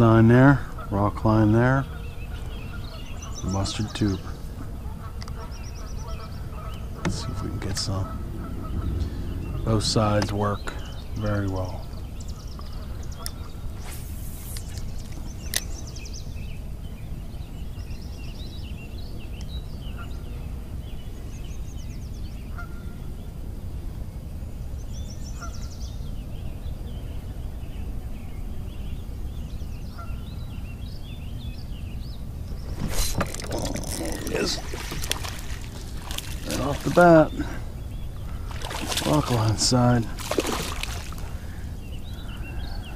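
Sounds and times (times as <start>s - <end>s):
birds calling and chirping: 0.0s - 42.9s
steady low rumble: 5.6s - 16.3s
splashing on water: 32.6s - 37.6s, 38.2s - 41.4s.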